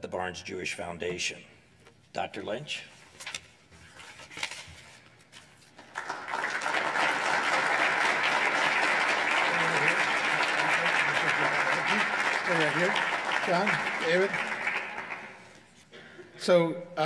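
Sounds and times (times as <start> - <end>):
audience applauding: 5.8 - 15.6.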